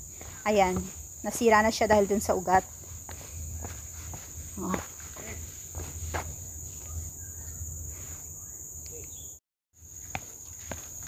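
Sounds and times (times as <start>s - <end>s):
footsteps on concrete: 0.0s - 7.0s, 10.0s - 11.0s
high-pitched insect chorus: 0.0s - 11.0s.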